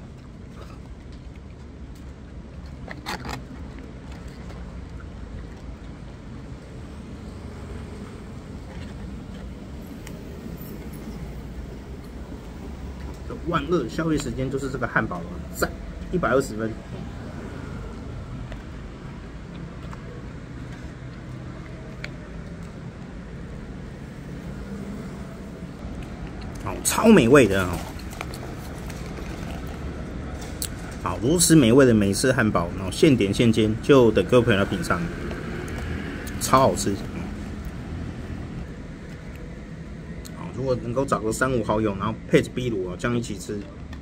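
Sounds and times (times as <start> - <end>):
low hum of street noise: 0.0 - 44.0
road traffic rumble: 0.0 - 44.0.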